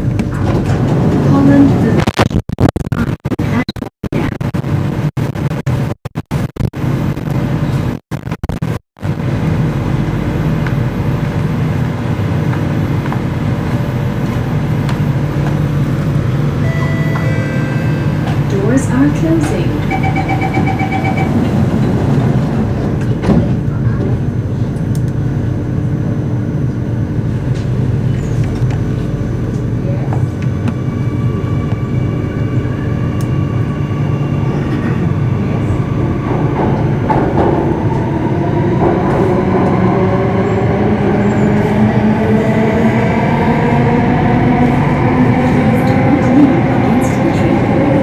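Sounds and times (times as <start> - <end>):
train equipment hum: 0.0 - 2.3, 9.0 - 48.0
door-closing warning beeps: 19.8 - 21.4.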